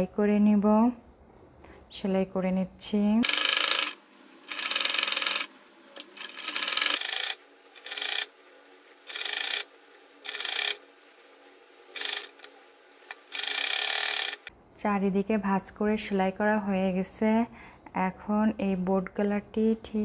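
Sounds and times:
sewing machine stitching: 3.2s - 8.4s, 9.0s - 10.8s, 11.9s - 12.5s, 13.1s - 14.5s.

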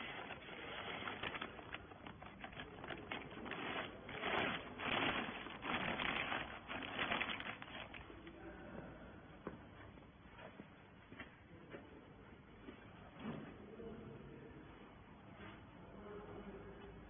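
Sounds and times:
plastic bag crinkling and rustling: 0.0s - 8.3s.

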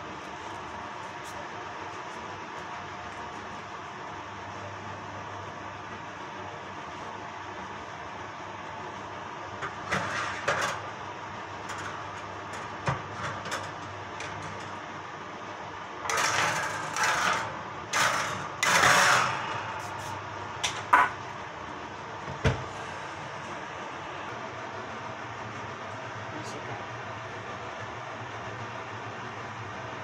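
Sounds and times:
oven fan humming: 0.0s - 30.0s
metal baking tin scraping on rack: 16.1s - 20.1s.

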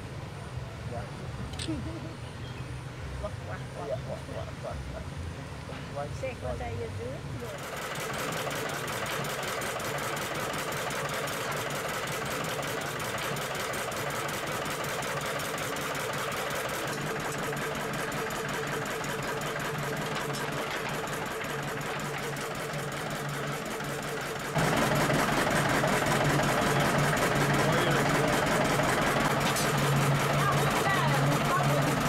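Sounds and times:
stationary engine running: 7.5s - 32.0s.

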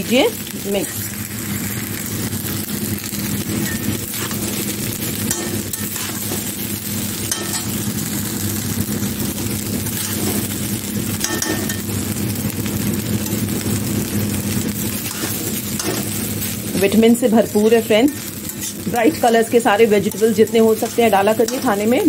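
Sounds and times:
low mechanical hum: 0.0s - 22.0s
spoon clinking against pan: 7.3s - 7.7s, 11.2s - 11.9s.

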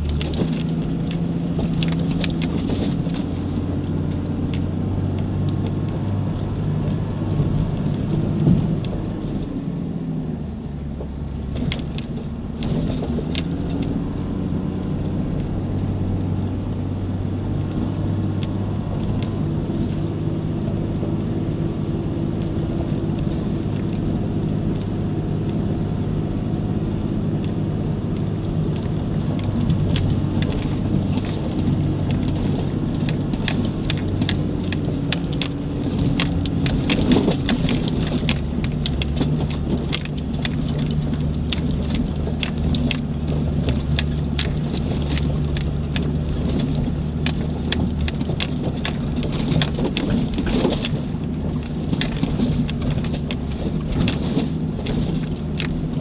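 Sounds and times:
cab rattles: 0.0s - 56.0s
car engine at low revs: 0.0s - 56.0s.

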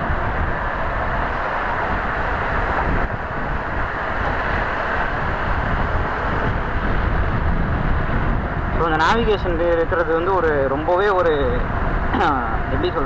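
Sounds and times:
motorcycle engine and road noise: 0.0s - 13.0s
wind rushing over microphone: 0.0s - 13.0s.

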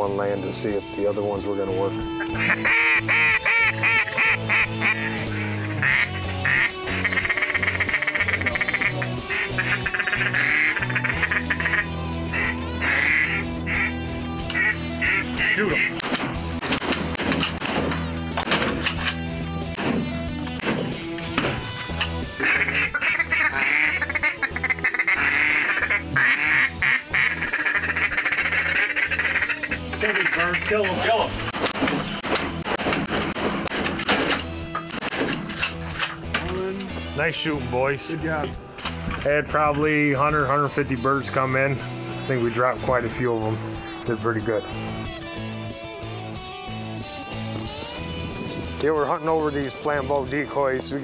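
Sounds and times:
background music with low notes: 0.0s - 51.0s
duck call quacking: 2.3s - 16.0s, 22.3s - 31.1s.

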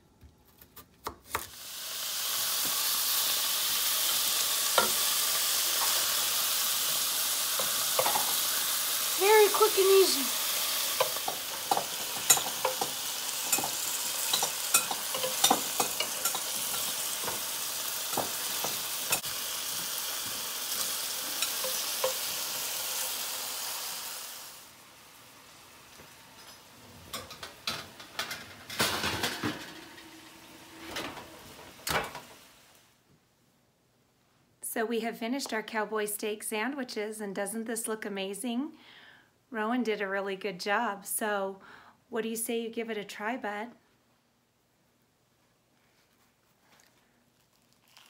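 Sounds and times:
steak sizzling in a frying pan: 1.5s - 26.8s
spatula scraping and tapping pan: 10.9s - 22.4s.

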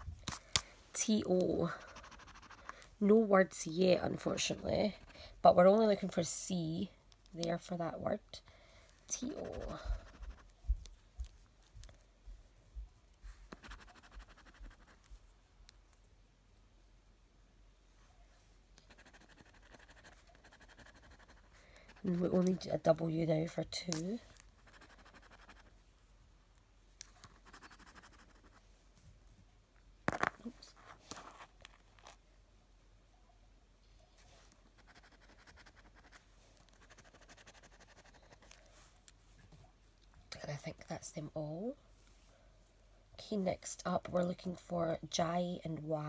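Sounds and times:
coin scratching scratch card: 1.9s - 2.6s, 13.6s - 15.0s, 18.9s - 21.5s, 24.6s - 25.7s, 27.3s - 28.6s, 34.8s - 36.2s, 36.8s - 38.5s.

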